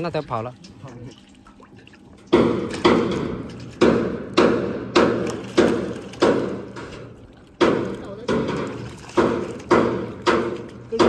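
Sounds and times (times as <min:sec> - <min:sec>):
fish thrashing wet slaps: 0:02.3 - 0:11.0.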